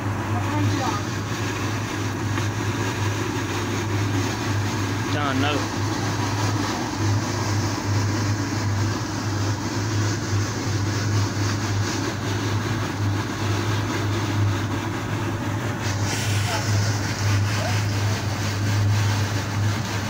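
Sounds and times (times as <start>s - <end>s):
machine engine humming: 0.0s - 20.0s
hiss: 15.8s - 19.2s.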